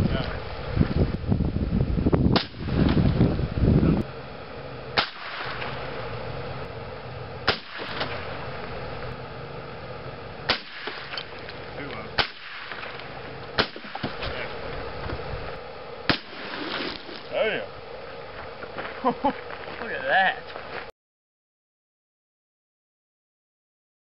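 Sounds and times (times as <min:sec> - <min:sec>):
rifle gunshots: 0:05.0 - 0:05.8, 0:07.5 - 0:08.3, 0:10.5 - 0:11.2, 0:12.2 - 0:13.0, 0:13.6 - 0:14.2, 0:16.1 - 0:16.8.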